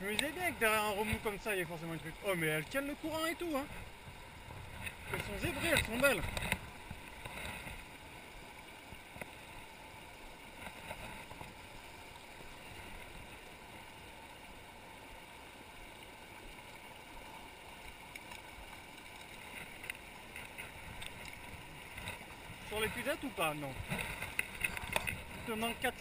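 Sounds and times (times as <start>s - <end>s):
river rushing over stones: 0.0s - 26.0s
faint ticks: 9.1s - 9.4s, 17.7s - 22.3s, 23.8s - 25.3s.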